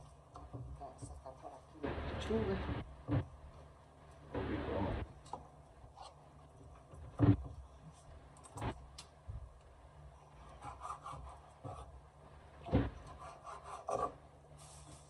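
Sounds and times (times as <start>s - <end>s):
soft rubbing and handling: 14.5s - 15.0s.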